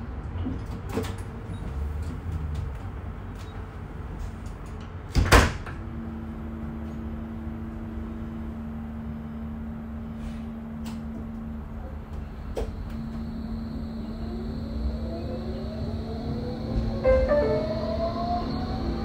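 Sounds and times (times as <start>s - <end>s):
low tram rumble: 0.0s - 19.0s
steady hum: 5.8s - 19.0s.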